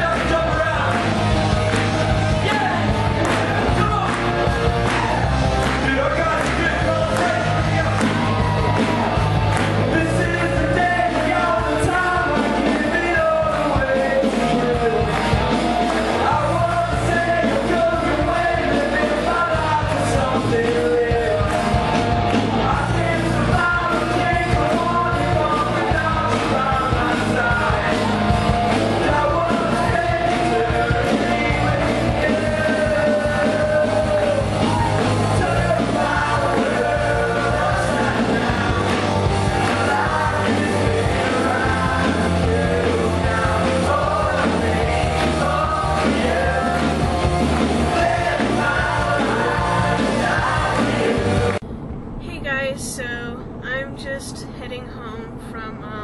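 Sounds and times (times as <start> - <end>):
woman and man singing: 0.0 - 1.0, 9.9 - 15.2, 16.2 - 21.7, 22.6 - 28.3, 28.9 - 47.0, 47.8 - 51.6
driving drum beat: 0.0 - 51.6
rock band playing: 0.0 - 51.6.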